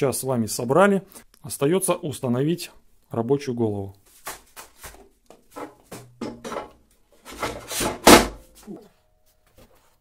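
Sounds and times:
metal knocks and scraping: 5.3 - 8.6
loud metal clunk: 7.4 - 8.4.

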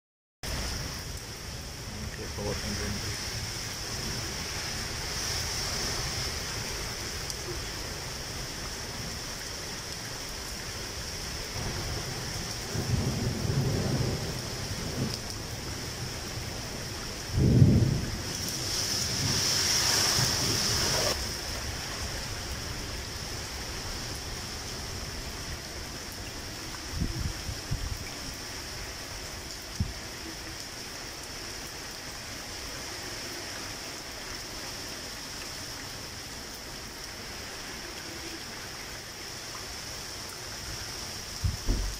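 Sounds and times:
rain hiss: 0.4 - 41.9
thunder rumble: 11.6 - 21.5, 41.4 - 41.9
sharp thunderclap: 17.3 - 18.2, 41.4 - 41.9.

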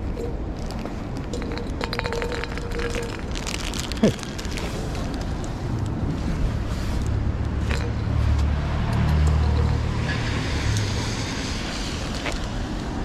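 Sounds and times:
plastic rain cover crinkling: 0.6 - 7.8
car engine rumble passing: 3.4 - 13.0
tyre hiss on wet road: 9.8 - 13.0.

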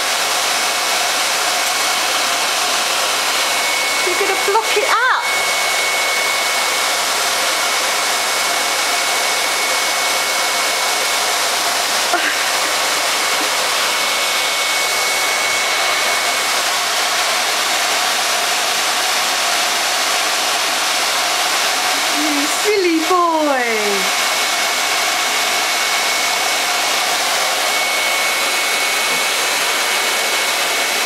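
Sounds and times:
vacuum cleaner running: 0.0 - 31.0.

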